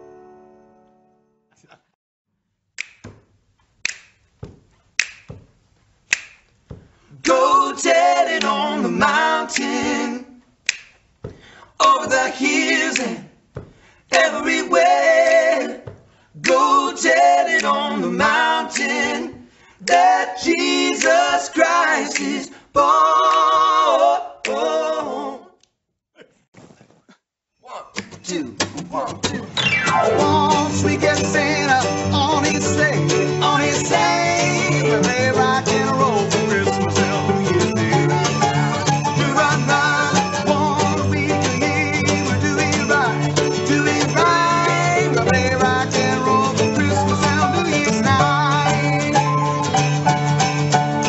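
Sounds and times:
finger snaps: 0:02.8 - 0:03.1, 0:03.8 - 0:04.3, 0:05.0 - 0:05.3, 0:06.1 - 0:06.6, 0:08.4 - 0:08.6, 0:10.6 - 0:11.0, 0:16.4 - 0:16.6, 0:18.7 - 0:18.9, 0:22.1 - 0:22.3
men singing together: 0:07.2 - 0:10.4, 0:11.8 - 0:13.3, 0:14.1 - 0:25.6, 0:30.1 - 0:49.5.

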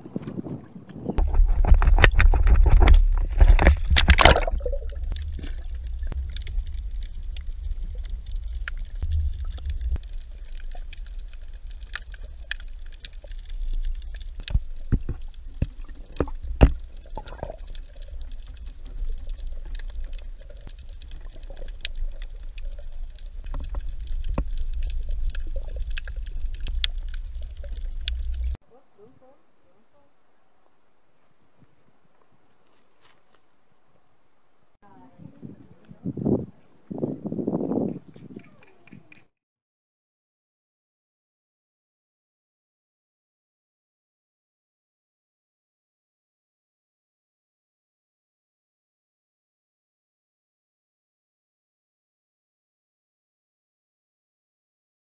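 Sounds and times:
water splashing and gurgling: 0:00.2 - 0:28.6
deep underwater rumble: 0:01.1 - 0:28.6
sharp underwater clicks and taps: 0:01.2 - 0:11.1, 0:11.7 - 0:28.6, 0:37.6 - 0:39.3.

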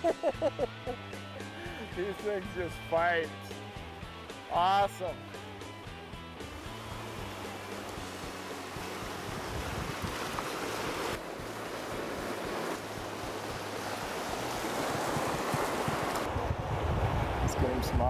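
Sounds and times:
river rushing over rocks: 0:06.5 - 0:16.4
wind on microphone: 0:08.9 - 0:11.2, 0:13.2 - 0:18.0.

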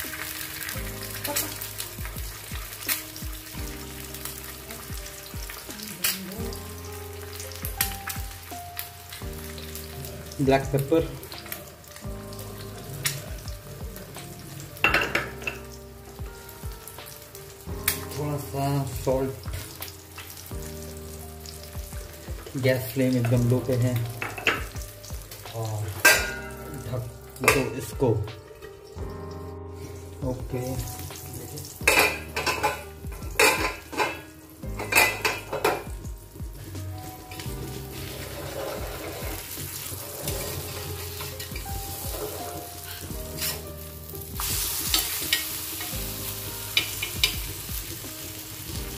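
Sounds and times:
eggs sizzling on a griddle: 0:00.0 - 0:48.9
egg sizzling faintly in a pan: 0:29.7 - 0:48.9.

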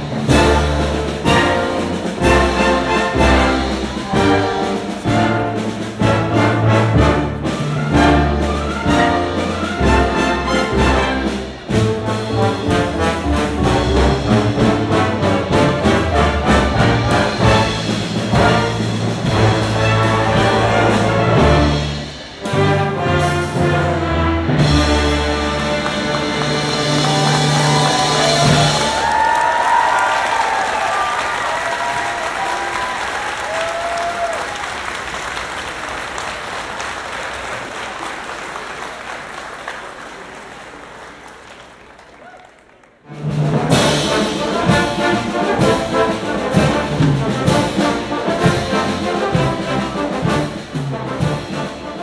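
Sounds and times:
brass-led music with beat: 0:00.0 - 0:28.7, 0:43.4 - 0:52.0
orchestra chord with brass: 0:00.0 - 0:29.0, 0:43.1 - 0:52.0
audience applauding: 0:25.1 - 0:43.1
audience cheering: 0:25.4 - 0:43.0.

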